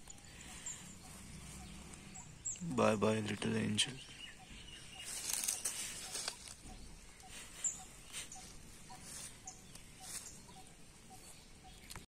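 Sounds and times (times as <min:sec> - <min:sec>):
hand scraping dry soil: 0:04.9 - 0:12.0.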